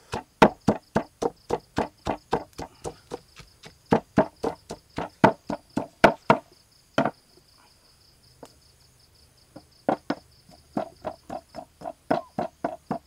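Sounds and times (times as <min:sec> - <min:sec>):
pestle pounding in stone mortar: 0:00.0 - 0:06.4, 0:09.9 - 0:13.0.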